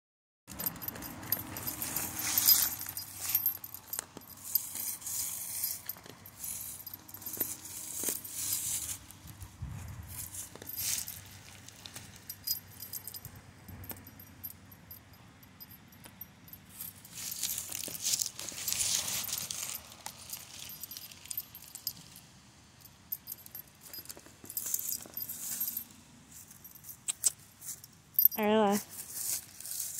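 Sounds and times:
metal chain clinking: 0.5s - 29.9s
puppy digging in dirt and leaves: 0.7s - 12.6s, 16.7s - 22.2s, 23.8s - 29.9s.

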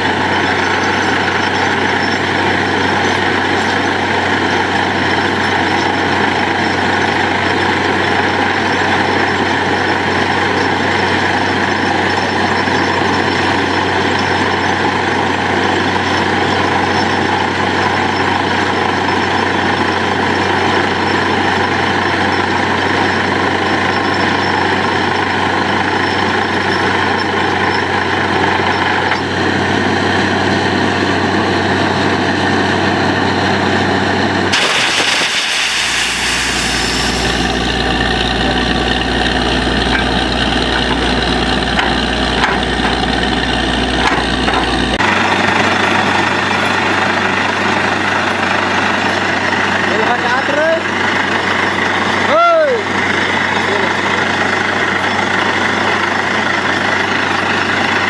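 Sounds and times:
drilling rig engine: 0.0s - 58.0s
loud rush of air: 34.5s - 37.7s
compressed air blowing: 34.5s - 37.8s.

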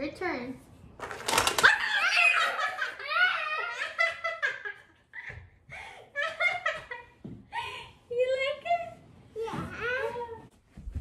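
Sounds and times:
toy snake clicking clatter: 1.1s - 1.7s
child laughing and shrieking: 1.6s - 4.0s
woman laughing and shrieking: 1.6s - 4.5s.

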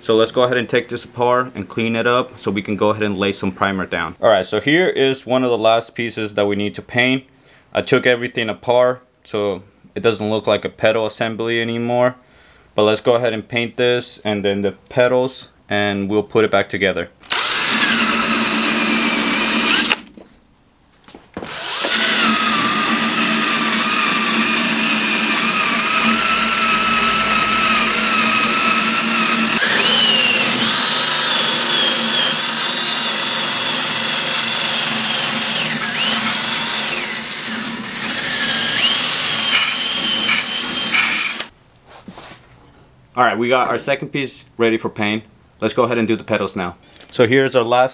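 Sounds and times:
drill wire brush on metal: 17.3s - 20.0s, 21.5s - 41.5s.

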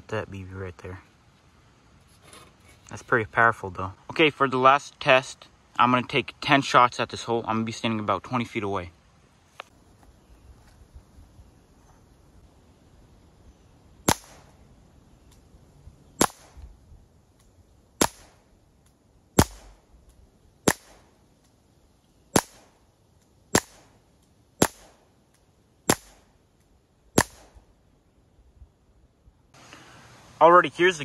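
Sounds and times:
bb gun shots: 14.1s - 14.6s, 16.2s - 16.6s, 18.0s - 18.4s, 19.4s - 19.9s, 20.7s - 21.1s, 22.3s - 22.8s, 23.5s - 24.0s, 24.6s - 25.0s, 25.9s - 26.3s, 27.2s - 27.6s.

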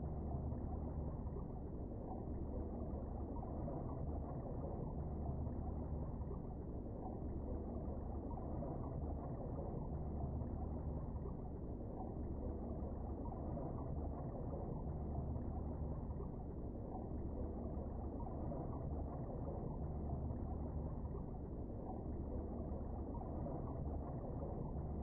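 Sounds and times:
muffled underwater rumble: 0.0s - 25.0s.

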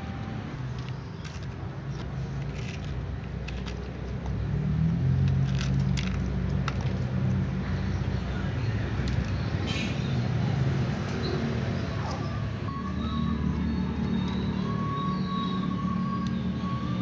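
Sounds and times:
cats crunching dry kibble: 0.7s - 4.2s, 5.3s - 7.0s.

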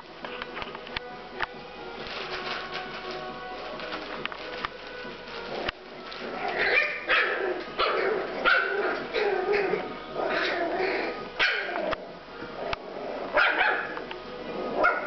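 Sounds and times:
puppies yapping and whining: 5.0s - 14.1s.

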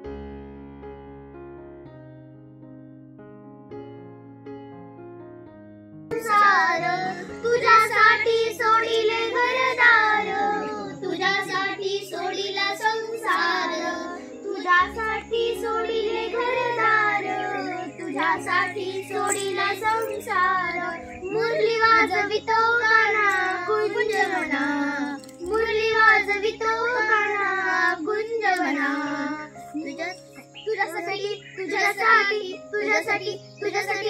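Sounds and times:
low keyboard notes: 0.0s - 34.0s
girls singing in unison: 6.1s - 30.0s, 30.6s - 34.0s.

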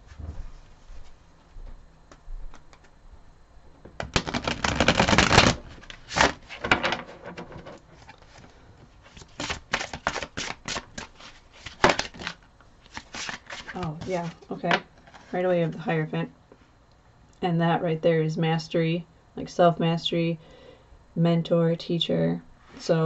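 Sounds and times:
cards being shuffled by hand: 4.0s - 15.4s.

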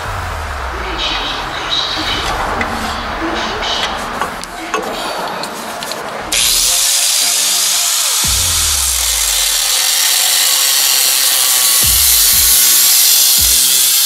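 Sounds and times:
background music: 0.0s - 14.0s
angle grinder cutting steel: 6.3s - 14.0s.

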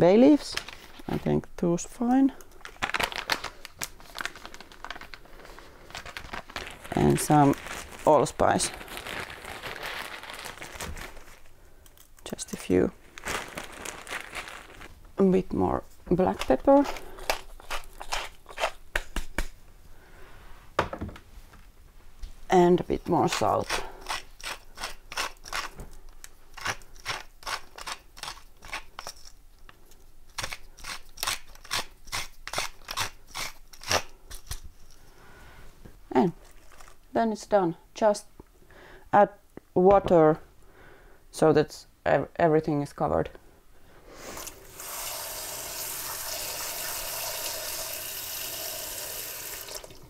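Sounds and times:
coarse salt crunching: 16.2s - 18.8s, 36.4s - 37.0s
tap water filling pot: 49.5s - 50.0s.

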